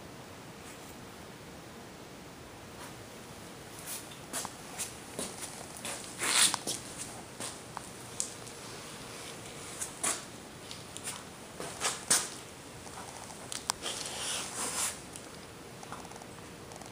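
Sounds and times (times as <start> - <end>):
soft rustles: 3.8 - 16.9
cat sniffing: 13.8 - 15.0.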